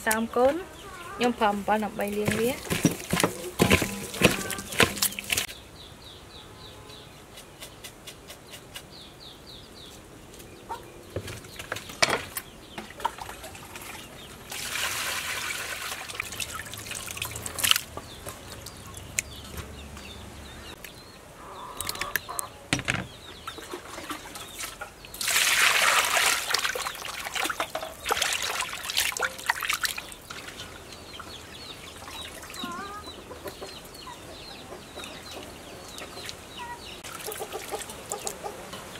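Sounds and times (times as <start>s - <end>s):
birds chirping: 0.0s - 14.6s, 16.4s - 25.3s, 29.2s - 38.9s
water splashing and dripping: 2.0s - 5.5s, 11.4s - 19.6s, 23.4s - 32.9s
chicken clucking: 32.6s - 38.9s.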